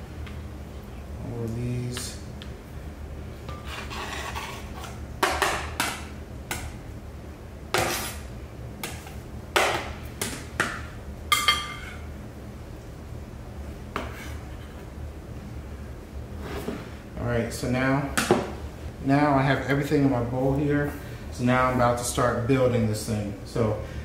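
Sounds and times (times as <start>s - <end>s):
knife scraping cutting board: 3.5s - 5.0s, 7.7s - 8.3s, 13.9s - 14.8s.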